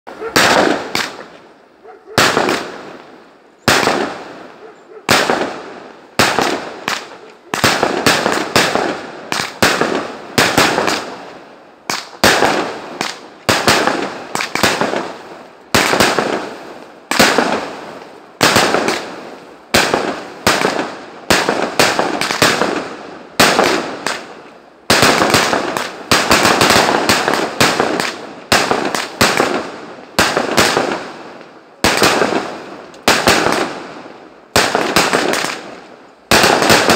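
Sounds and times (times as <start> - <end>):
firework shells bursting: 11.9 - 33.8, 34.5 - 36.9.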